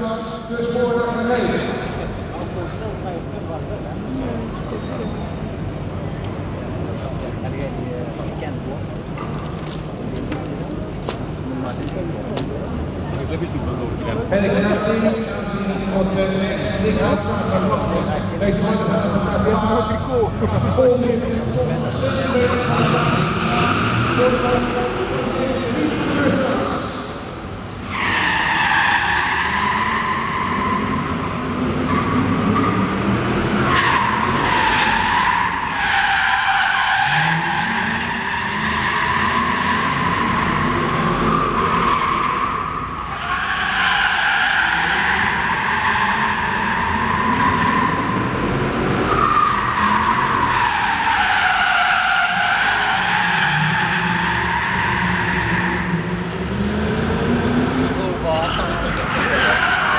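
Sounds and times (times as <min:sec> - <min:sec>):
car engines running: 0:00.0 - 0:59.9
tyres squealing: 0:33.5 - 0:56.2, 0:57.9 - 0:59.9.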